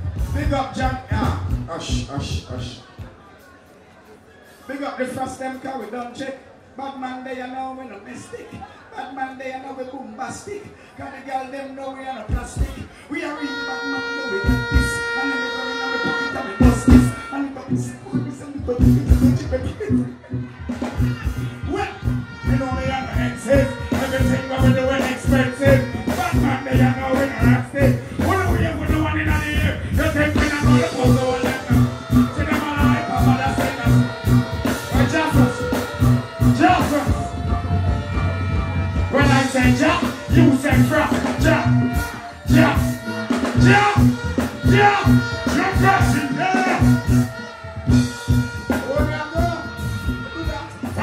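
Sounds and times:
dancehall music with heavy bass: 0.0 - 3.0, 12.3 - 51.0
live reggae band: 0.0 - 51.0
person speaking into a microphone: 6.8 - 20.2, 21.0 - 37.5
person singing: 13.4 - 28.8, 29.6 - 51.0.

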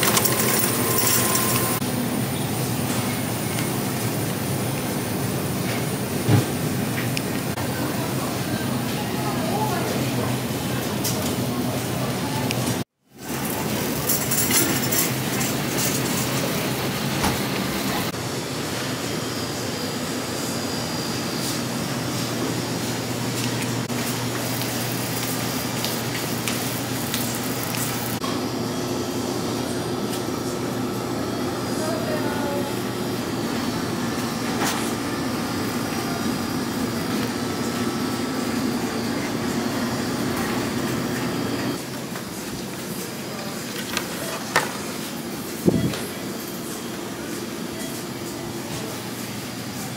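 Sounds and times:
shopping cart rolling and rattling: 0.0 - 1.8, 13.3 - 16.9.

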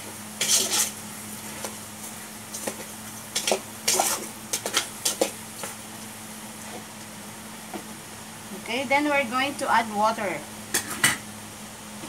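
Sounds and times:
chicken sizzling: 0.0 - 12.0
metal spatula scraping pot: 0.4 - 1.0, 2.6 - 5.7.

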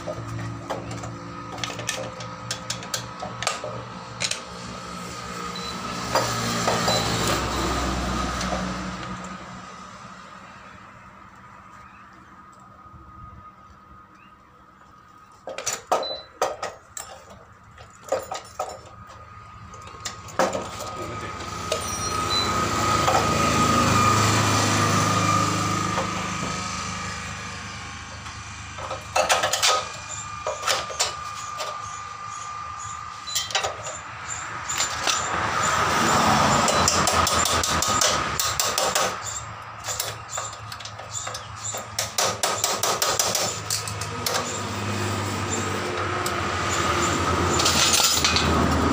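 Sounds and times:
metallic clicks of hand tools: 36.6 - 44.6.

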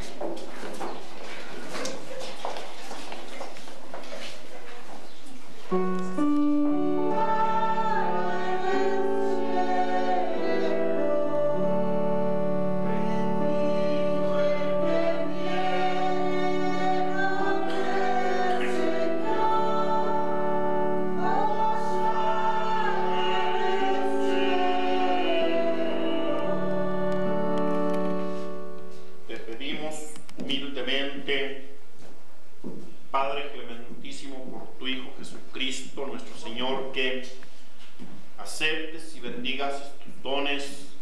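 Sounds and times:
organ chords: 5.0 - 31.9
singing: 13.0 - 20.5.

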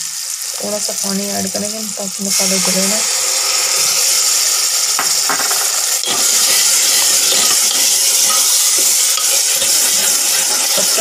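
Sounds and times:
masala sizzling in a pot: 0.0 - 11.0
steel ladle clinking on pot: 6.0 - 10.8.

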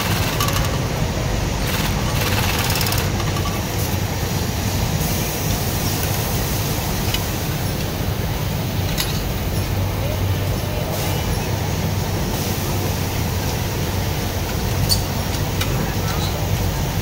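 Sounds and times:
sewing machine stitching: 0.0 - 0.9, 1.6 - 3.4
steady machine hum: 0.0 - 17.0.

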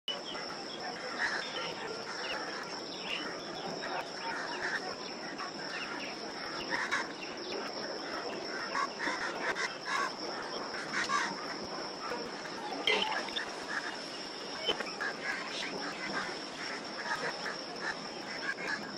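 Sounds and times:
steady high-pitched hum: 0.1 - 18.9
crows cawing: 8.1 - 11.6
squirrels chirping: 12.1 - 15.8.

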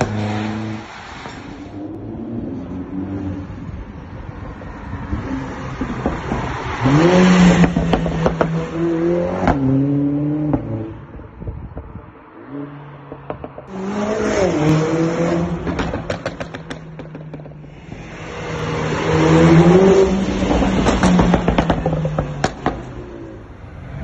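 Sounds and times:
exhaust pops and crackles: 15.6 - 17.8, 20.4 - 23.0
car engine accelerating hard: 17.7 - 23.5.

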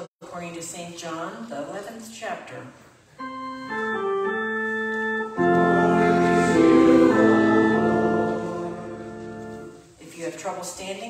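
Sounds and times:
organ playing sustained chords: 3.2 - 9.8.

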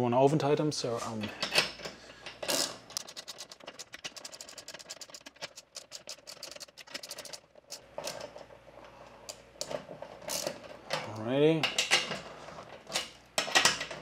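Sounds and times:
ratchet clicking: 2.5 - 8.2.

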